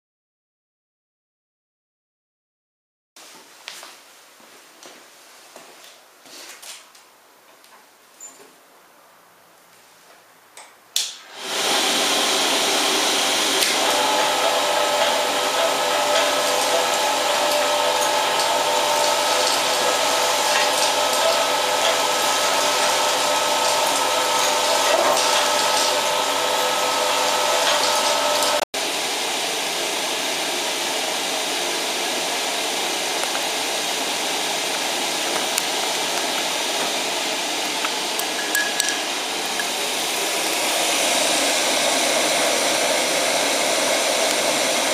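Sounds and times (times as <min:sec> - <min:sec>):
blower fan rushing: 0:11.1 - 0:44.9.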